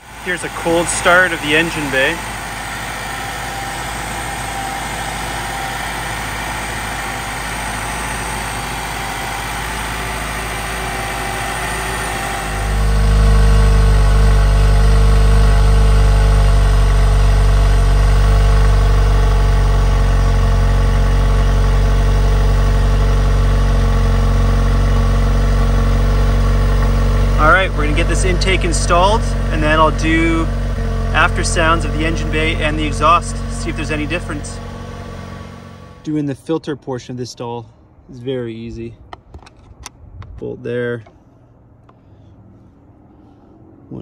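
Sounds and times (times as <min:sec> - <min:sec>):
car engine idling: 0:00.0 - 0:36.4, 0:41.0 - 0:44.0.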